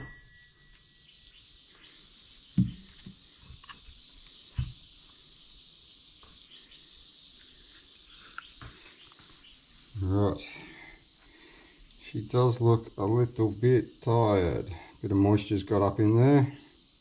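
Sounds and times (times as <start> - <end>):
metal valve plate ringing: 0.0 - 1.0
faint high hiss: 0.0 - 17.0
dull knocks: 2.6 - 3.2.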